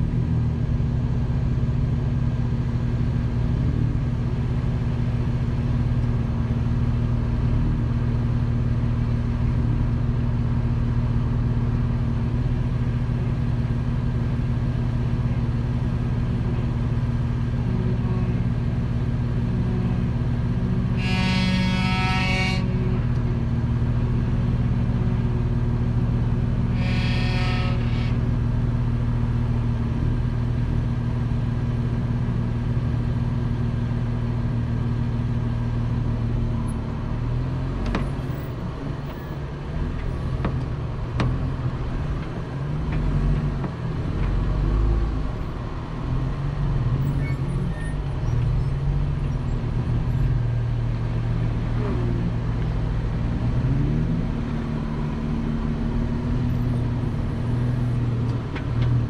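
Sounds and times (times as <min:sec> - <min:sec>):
high-pitched squeal: 0:26.7 - 0:28.3
car engine running: 0:27.4 - 0:59.0.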